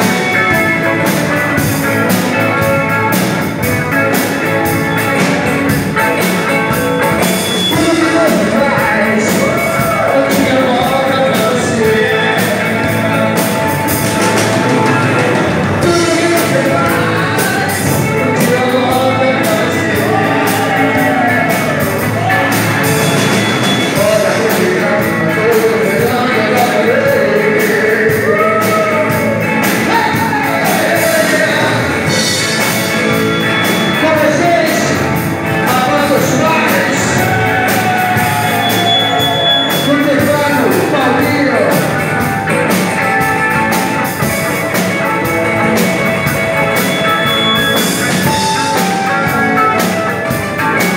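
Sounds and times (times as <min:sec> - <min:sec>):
live rock band playing: 0:00.0 - 0:50.9
man singing: 0:07.7 - 0:13.7, 0:14.4 - 0:42.0.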